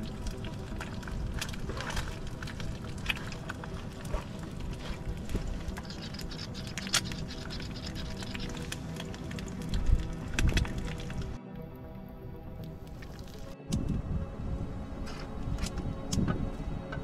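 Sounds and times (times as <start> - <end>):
soft background music with drone: 0.0 - 17.0.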